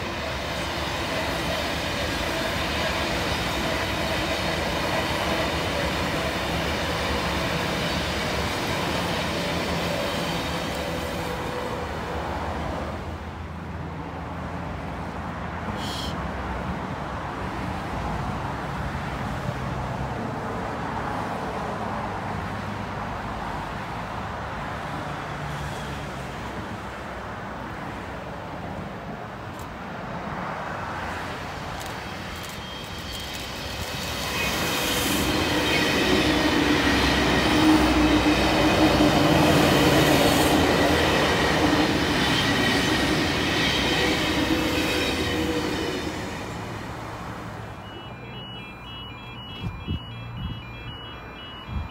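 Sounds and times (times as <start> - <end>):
electric train whine: 0.0 - 12.8, 31.0 - 51.9
train wheels on track: 0.0 - 28.8, 29.4 - 51.9.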